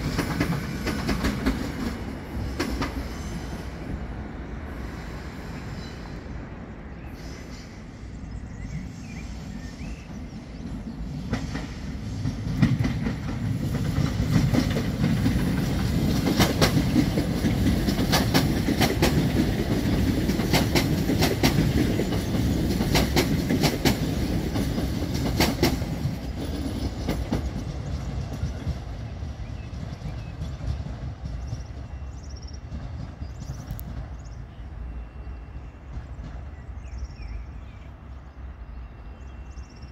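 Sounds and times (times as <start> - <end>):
wheels clacking over rail joints: 0.0 - 3.2, 11.2 - 32.0
electric train passing: 0.0 - 39.9.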